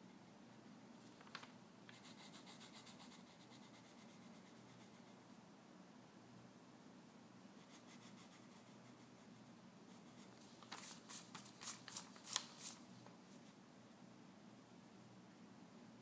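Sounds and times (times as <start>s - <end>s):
faint low hum: 0.0s - 16.0s
pencil scratching on paper: 1.9s - 5.2s, 7.6s - 12.7s.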